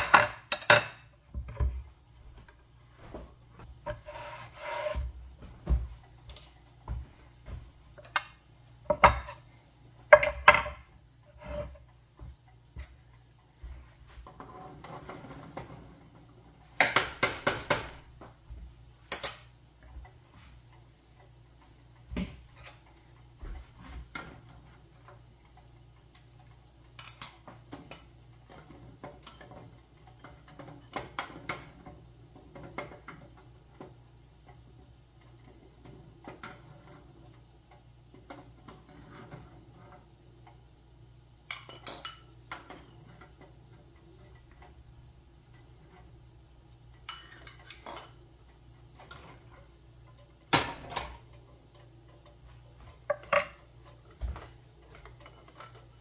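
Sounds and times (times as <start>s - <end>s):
dishes and utensils clinking: 0.0s - 1.8s, 6.2s - 7.0s, 8.0s - 11.9s, 19.0s - 20.0s, 27.0s - 34.0s, 41.4s - 44.8s, 47.0s - 48.2s, 48.9s - 56.0s.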